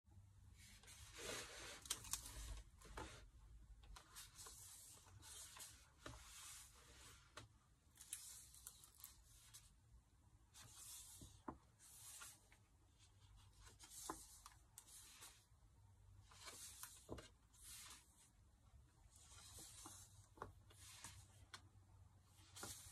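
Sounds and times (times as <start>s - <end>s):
paper pages rustling: 0.8s - 3.3s, 3.9s - 9.7s, 10.6s - 15.5s, 16.2s - 18.2s, 19.1s - 21.6s, 22.3s - 22.9s.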